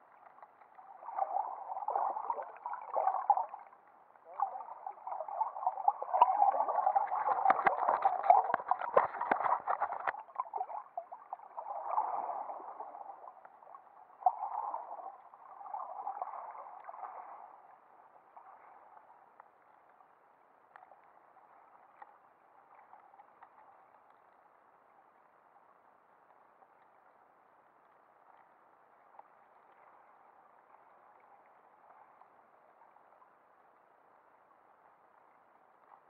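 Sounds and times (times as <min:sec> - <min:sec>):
muffled underwater noise: 0:00.8 - 0:17.8
sharp underwater clicks: 0:07.0 - 0:10.5.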